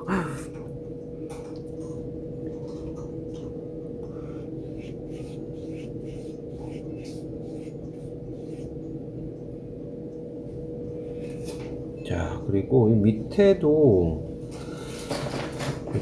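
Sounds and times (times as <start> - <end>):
low electrical hum: 0.0 - 16.0
brush strokes on paper: 4.4 - 8.8.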